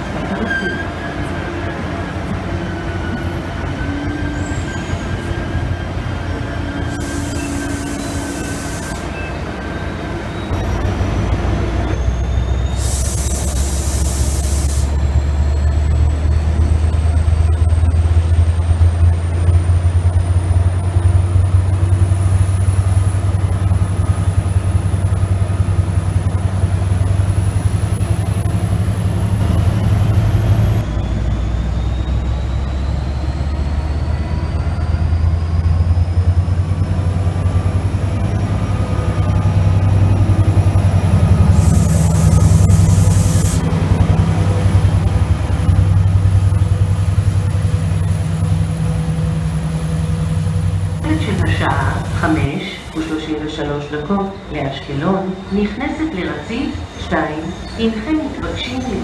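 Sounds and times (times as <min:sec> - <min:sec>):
diesel locomotive idling: 0:00.0 - 0:59.0
short high hiss: 0:12.8 - 0:14.9, 0:41.5 - 0:43.6.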